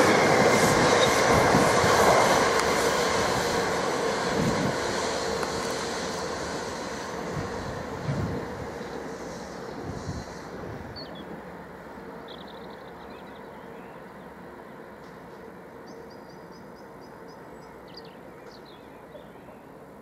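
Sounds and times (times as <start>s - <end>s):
electric train running: 0.0s - 13.5s
birds chirping: 15.8s - 19.8s.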